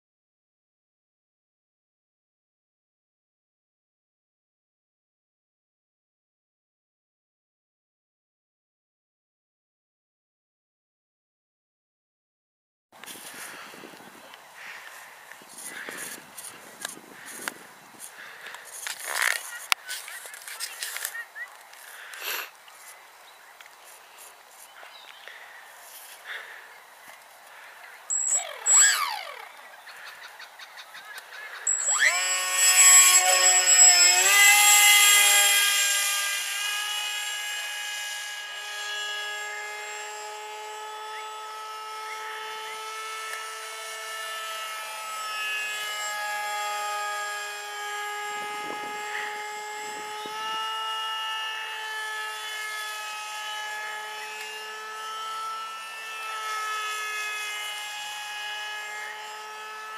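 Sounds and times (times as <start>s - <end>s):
electric motor and propeller whine: 13.0s - 30.3s, 31.2s - 59.9s.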